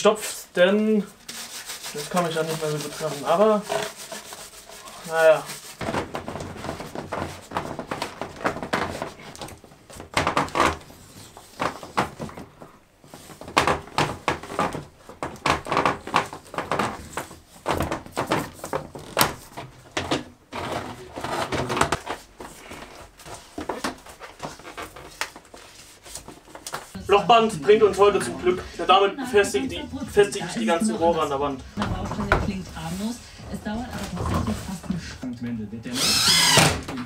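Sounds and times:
plastic hose scraping on pipe: 0:01.0 - 0:27.0.

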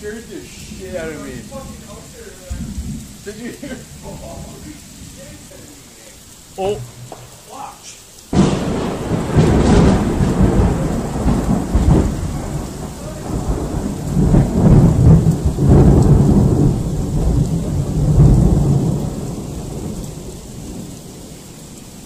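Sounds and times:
falling rain: 0:00.0 - 0:22.0
thunder rumbling: 0:00.0 - 0:22.0.

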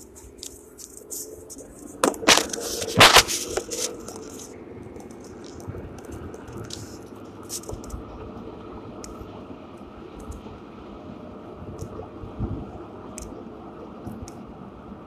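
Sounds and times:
car cabin noise while driving: 0:00.0 - 0:15.0
phone handling knocks and scrapes: 0:01.8 - 0:04.4.

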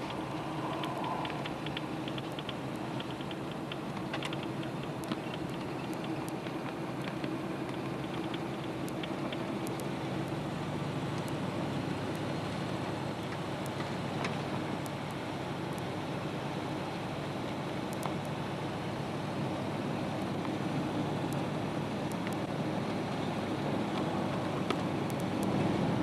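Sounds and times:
precipitation ticking on windshield: 0:00.0 - 0:10.4
vehicle engine and road noise: 0:00.0 - 0:26.0.

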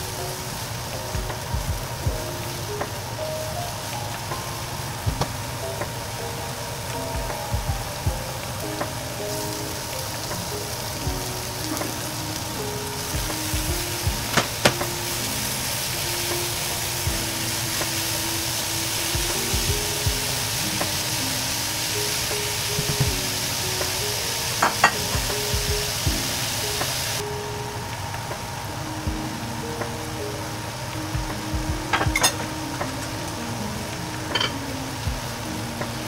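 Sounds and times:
meat sizzling in a skillet: 0:00.0 - 0:27.2, 0:31.3 - 0:36.0.

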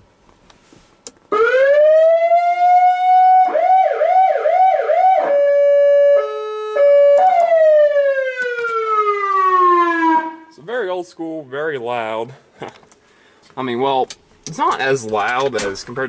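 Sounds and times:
electronic siren wailing and yelping: 0:01.3 - 0:10.5.

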